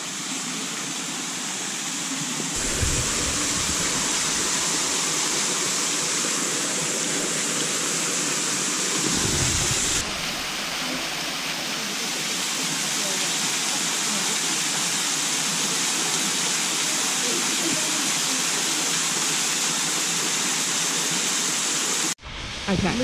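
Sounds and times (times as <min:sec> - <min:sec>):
waterfall splashing: 0:00.0 - 0:22.2
low rumbles: 0:02.6 - 0:05.3, 0:09.0 - 0:11.0.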